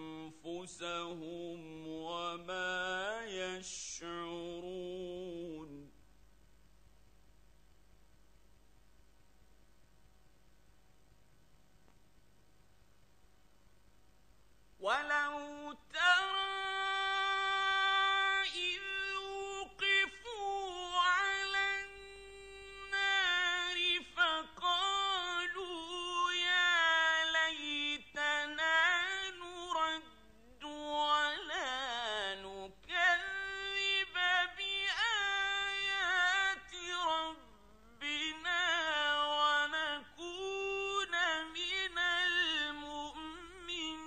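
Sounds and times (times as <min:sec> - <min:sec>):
man reciting melodically: 0:00.0 - 0:06.0, 0:14.8 - 0:44.0.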